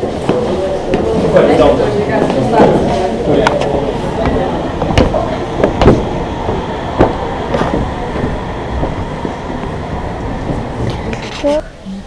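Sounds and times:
wind buffeting microphone: 1.6 - 11.5
sharp knocks: 4.2 - 7.9.

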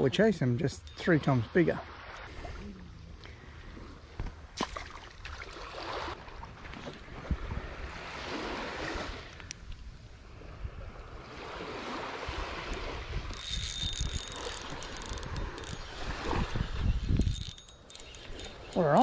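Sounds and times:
small waves washing on sand: 4.6 - 9.4, 10.2 - 13.4, 14.4 - 16.9
wind buffeting microphone: 7.0 - 9.2, 10.4 - 19.0.

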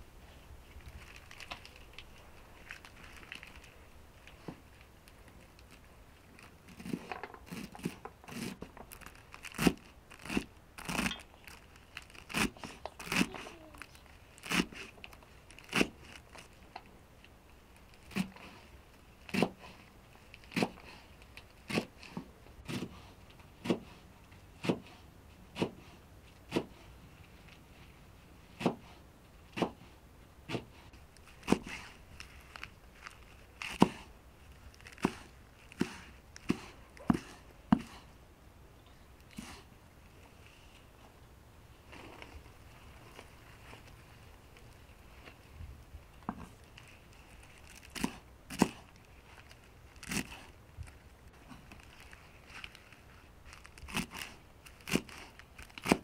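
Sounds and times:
sharp knocks or cuts: 29.6 - 29.8.

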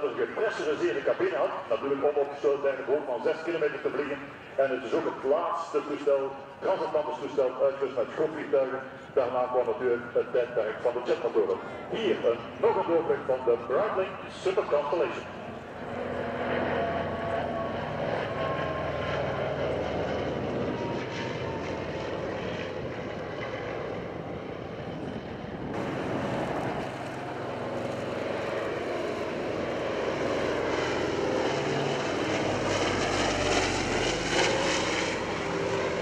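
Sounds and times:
propeller plane engines droning: 0.0 - 36.0.

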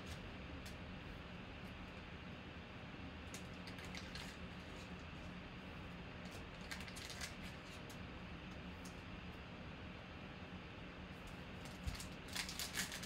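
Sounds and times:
steady low hum: 0.0 - 13.0
foil wrapper crinkling: 3.6 - 4.4, 6.3 - 7.8, 11.6 - 13.0.

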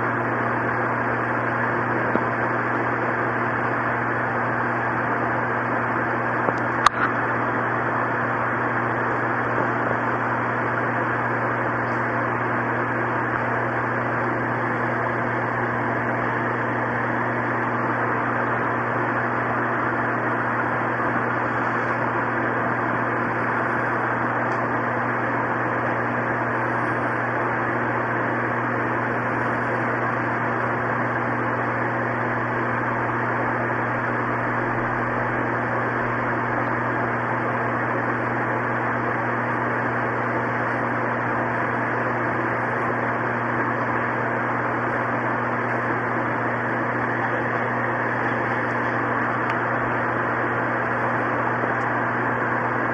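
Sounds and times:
low electrical hum: 0.0 - 52.9.

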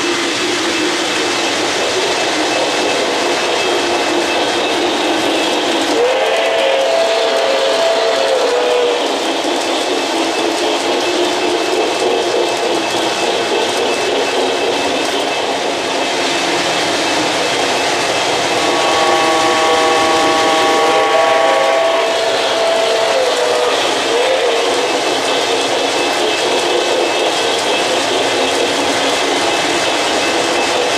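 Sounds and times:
model train wheels clattering: 0.0 - 30.9
model locomotive horn: 5.9 - 9.1, 18.5 - 24.6.

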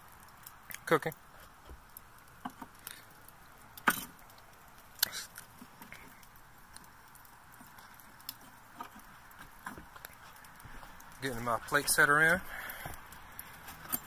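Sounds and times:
metal frame clinking on grill: 3.8 - 4.3, 13.6 - 14.0.

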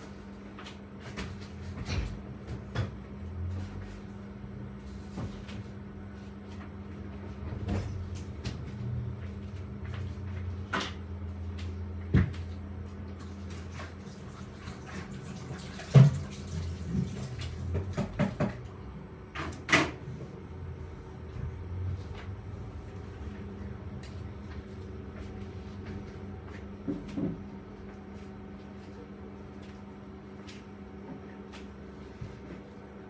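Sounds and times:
steady low hum: 16.7 - 33.0.

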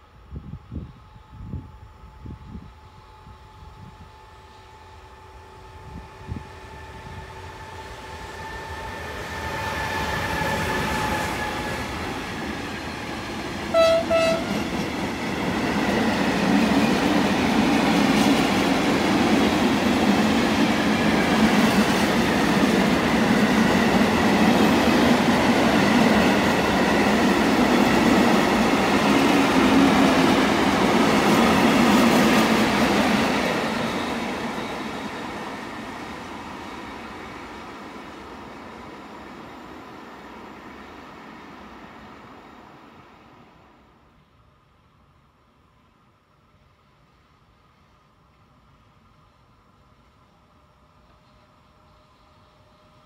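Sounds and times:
electric locomotive whine: 0.0 - 53.0
train horn blast: 13.7 - 14.8.

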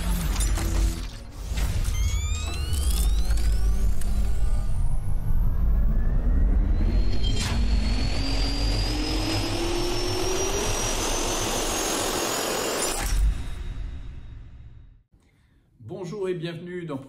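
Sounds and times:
jet engine spooling up: 2.0 - 14.6.

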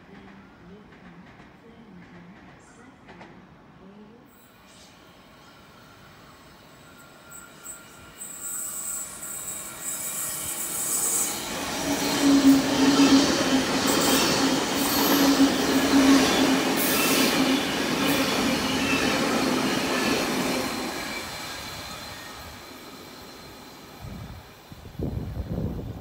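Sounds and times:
train passing at speed: 0.0 - 26.0.

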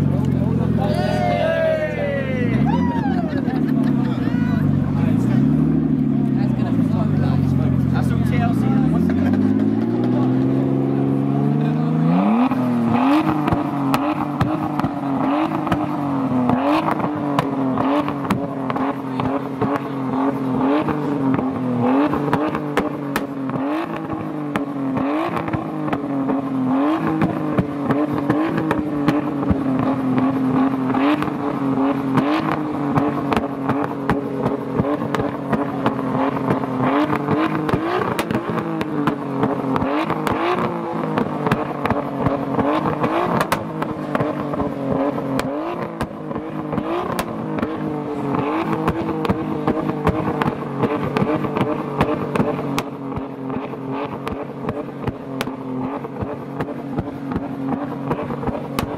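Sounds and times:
car engine at high revs: 0.0 - 58.9
exhaust crackling pops: 20.8 - 26.1, 27.0 - 58.9.

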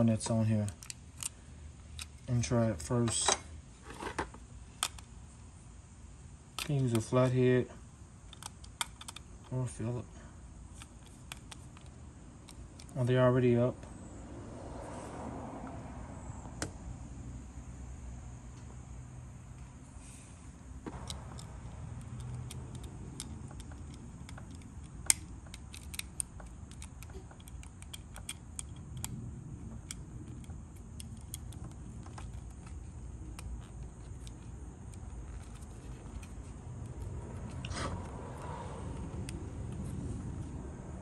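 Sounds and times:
steady low rumble: 4.4 - 41.0
plastic and metal clicks: 8.3 - 9.5, 20.9 - 29.2, 29.8 - 37.7.

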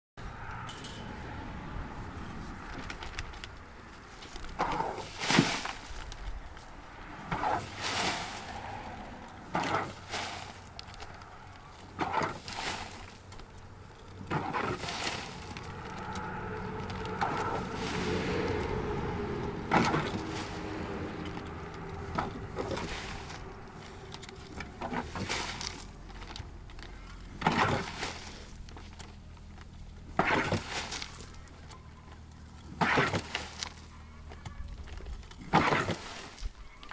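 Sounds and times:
soil dumped into wooden cart: 4.2 - 6.3, 7.2 - 11.2, 11.8 - 13.3, 14.2 - 19.0, 19.6 - 29.1, 30.0 - 31.6, 32.7 - 33.9, 35.4 - 36.6
shovel scraping soil: 4.5 - 6.1, 7.2 - 13.3, 14.2 - 29.2, 30.0 - 31.6, 32.7 - 33.9, 35.4 - 36.6.

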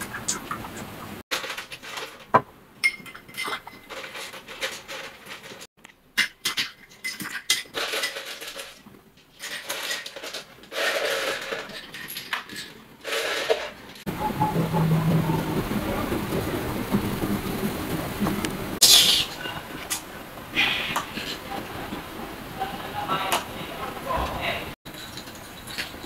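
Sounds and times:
rustling and scraping: 1.3 - 5.7, 6.5 - 18.8
glasses and utensils clinking: 2.8 - 4.9.

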